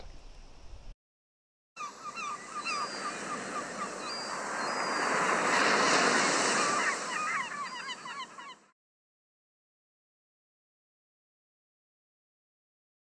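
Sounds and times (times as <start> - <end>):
birds chirping: 1.8 - 8.7
surf washing on a shore: 1.9 - 8.5.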